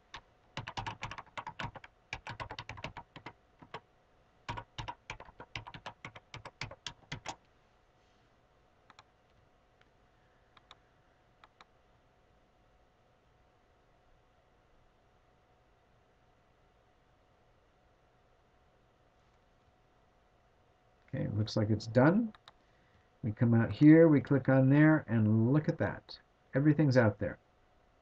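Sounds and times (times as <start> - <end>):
typing on computer keyboard: 0.0 - 3.8, 4.5 - 7.4.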